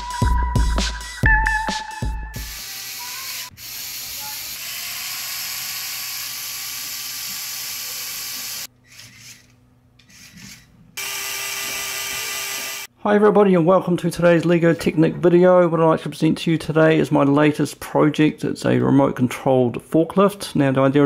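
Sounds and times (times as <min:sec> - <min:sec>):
electric motor whirring gears: 0:02.4 - 0:12.9.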